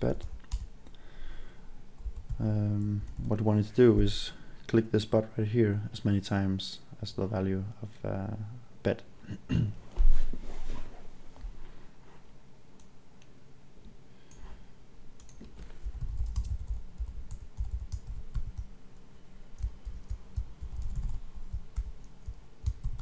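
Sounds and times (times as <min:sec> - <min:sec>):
typing on computer keyboard: 0:15.2 - 0:18.7, 0:19.6 - 0:23.0.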